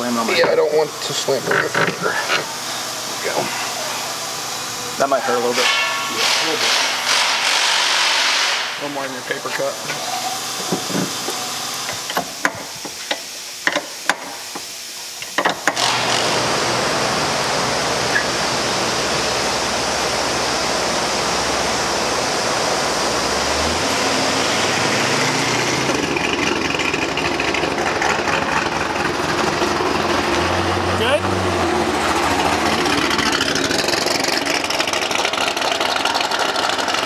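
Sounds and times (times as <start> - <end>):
faint vehicle engine: 16.6 - 37.0.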